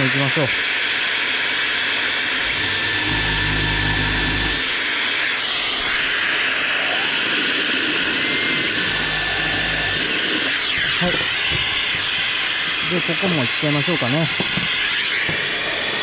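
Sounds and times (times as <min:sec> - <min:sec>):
power drill boring into wood: 0:02.2 - 0:16.0
dust extractor hissing: 0:08.4 - 0:16.0.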